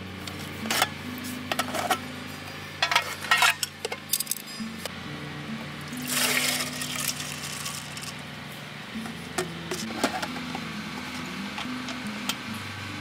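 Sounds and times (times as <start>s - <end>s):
rice and water pouring: 6.0s - 8.0s.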